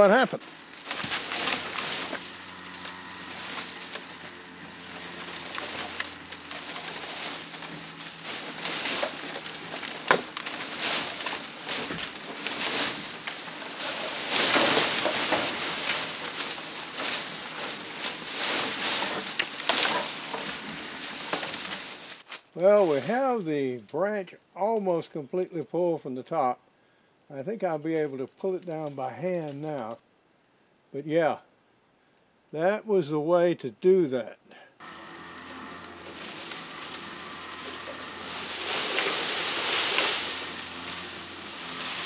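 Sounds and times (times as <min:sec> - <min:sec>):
tree branches cracking and snapping: 0:00.0 - 0:22.6, 0:34.8 - 0:42.0
twigs and dry leaves crackling: 0:00.0 - 0:23.5, 0:34.8 - 0:42.0.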